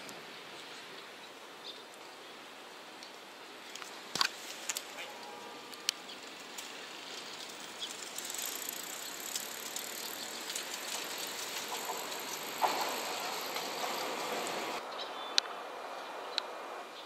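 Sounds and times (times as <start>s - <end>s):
rail clicks: 5.8s - 14.8s
train wheels rushing on rail: 8.7s - 14.8s
heavy train clunk: 11.8s - 14.8s.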